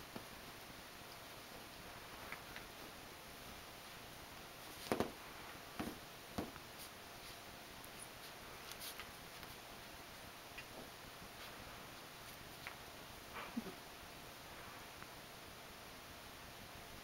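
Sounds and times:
faint room hiss: 0.0s - 17.0s
puppy rustling plush toys: 0.1s - 13.3s.

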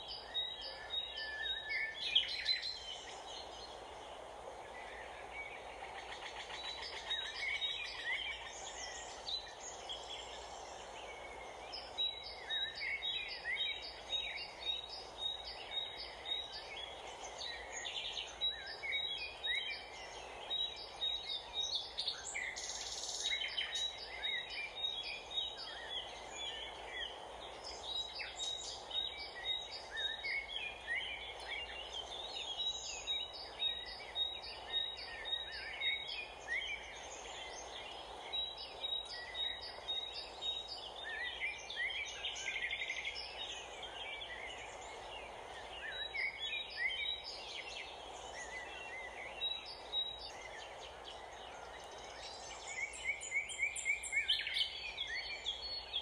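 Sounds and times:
background noise: 0.0s - 56.0s.

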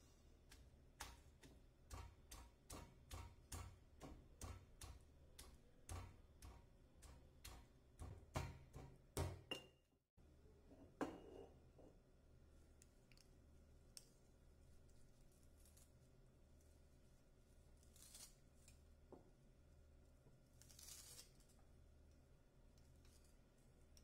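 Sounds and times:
stone pestle pounding in mortar: 0.5s - 9.6s.

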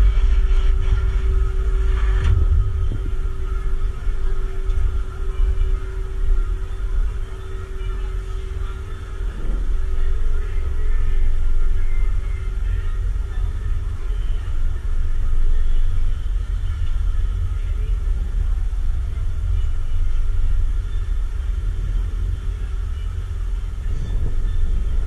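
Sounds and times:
faint steady hum: 0.0s - 25.0s
wind buffeting microphone: 0.0s - 25.0s.

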